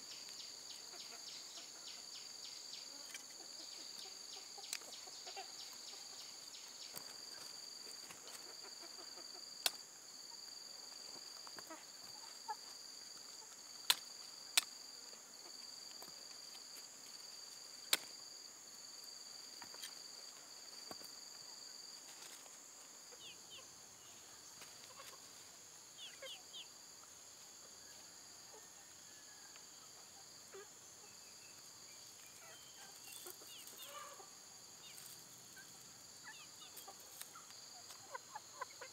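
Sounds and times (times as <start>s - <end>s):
high-pitched insect chorus: 0.0s - 38.9s
roots cut with sharp clicks: 17.9s - 18.1s.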